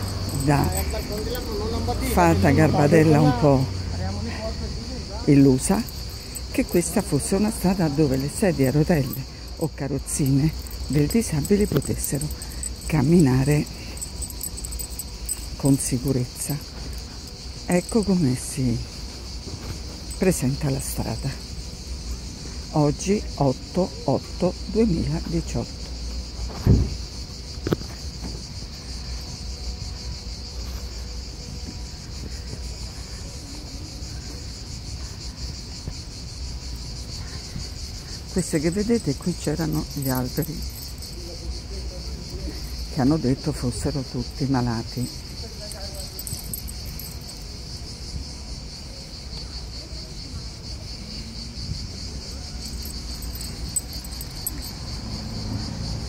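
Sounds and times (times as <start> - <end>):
cicadas buzzing: 0.0 - 56.0
insects chirring: 0.0 - 56.0
thump: 26.5 - 27.0.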